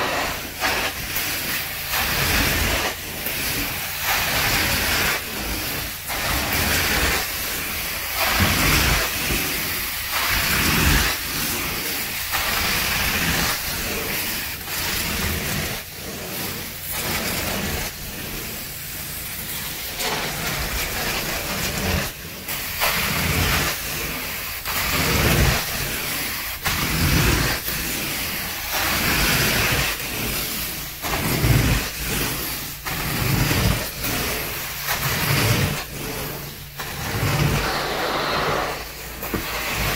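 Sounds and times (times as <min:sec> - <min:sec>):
carpet extraction wand suction hiss: 0:15.6 - 0:39.9.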